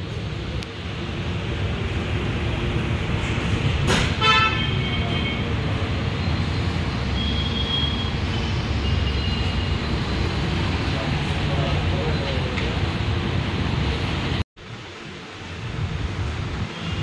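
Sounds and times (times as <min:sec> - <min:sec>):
road traffic rumble: 0:00.0 - 0:17.0
vehicle horn honking: 0:04.2 - 0:05.5.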